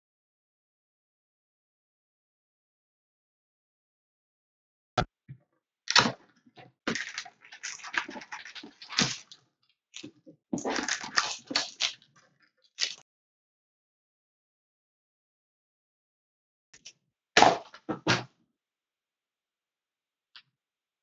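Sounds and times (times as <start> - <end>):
packaging rustling: 6.9 - 9.4, 10.0 - 12.1
packaging tearing and crinkling: 6.9 - 9.4, 10.0 - 12.1, 12.8 - 13.0.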